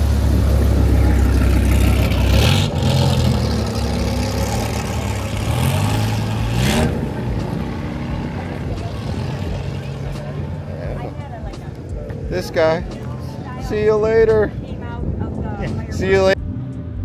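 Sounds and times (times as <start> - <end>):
car engine revving: 0.0 - 13.4.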